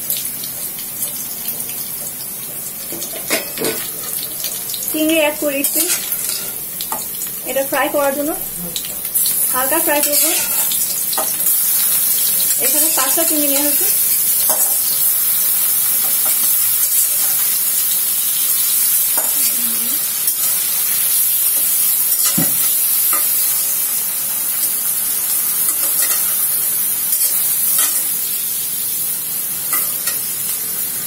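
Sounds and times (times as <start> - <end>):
prawns sizzling in oil: 0.0 - 31.0
metal spatula scraping pan: 10.0 - 10.8.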